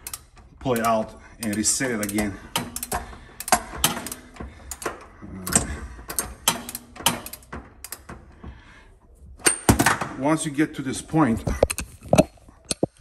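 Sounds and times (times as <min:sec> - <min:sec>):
ratchet wrench clicking: 0:00.0 - 0:08.1.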